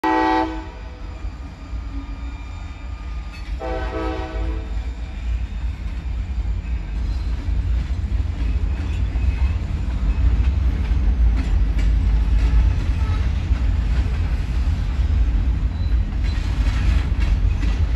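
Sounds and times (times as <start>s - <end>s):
train horn blasts: 0.0s - 0.9s, 3.6s - 4.8s.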